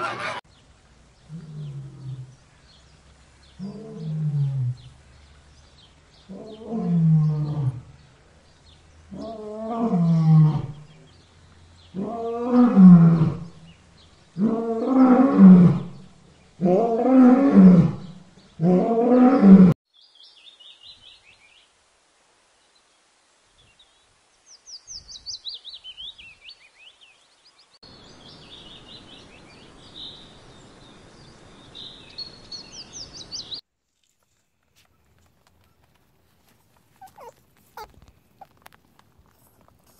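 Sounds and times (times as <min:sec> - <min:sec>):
faint steady hiss: 0:00.5 - 0:06.8, 0:19.9 - 0:39.9
tiger roaring: 0:01.3 - 0:02.4
small birds chirping: 0:23.5 - 0:39.9.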